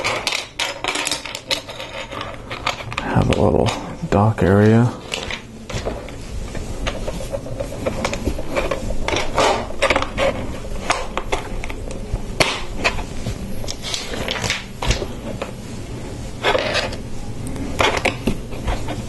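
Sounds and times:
plastic bricks clicking and clattering: 0:00.0 - 0:03.8.

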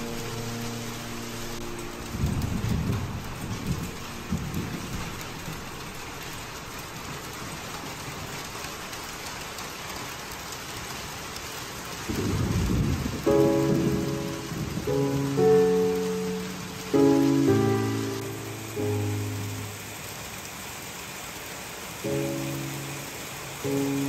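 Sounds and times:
thunder rolling: 0:00.0 - 0:08.0, 0:12.0 - 0:20.4
steady rain: 0:00.0 - 0:24.0.

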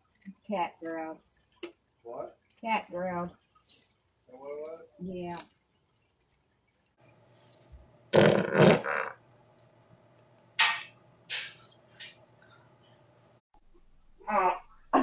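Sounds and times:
person farting: 0:08.1 - 0:09.2.

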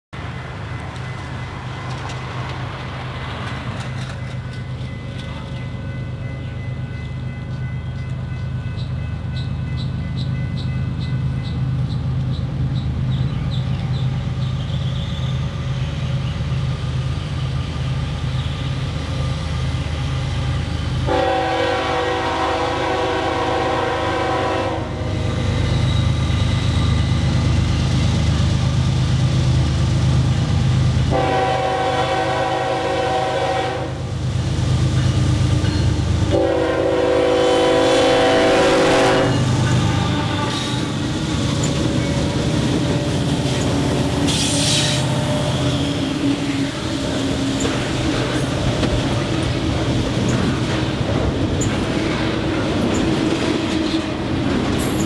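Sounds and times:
locomotive rumble: 0:00.2 - 0:55.0
train horn blast: 0:21.0 - 0:25.4, 0:31.1 - 0:34.1, 0:36.2 - 0:41.1, 0:43.0 - 0:46.9.

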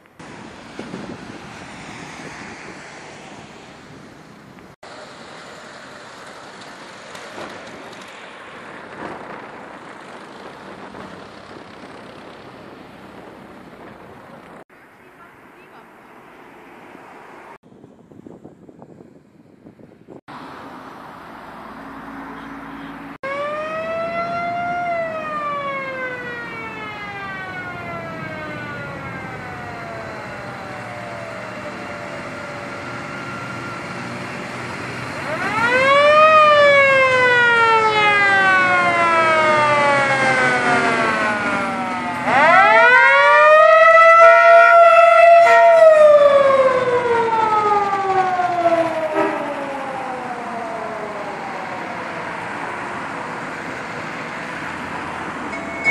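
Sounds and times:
police sirens wailing: 0:22.0 - 0:55.9.

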